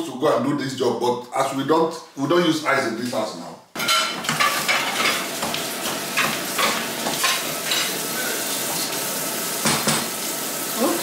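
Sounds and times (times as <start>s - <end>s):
spatula scraping a saucepan: 3.9s - 8.0s.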